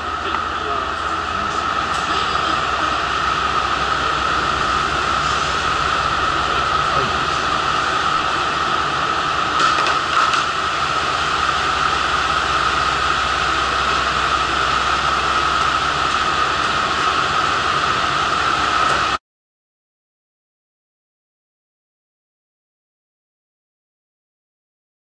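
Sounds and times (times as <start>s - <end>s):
diesel railcar idling: 0.0s - 19.2s.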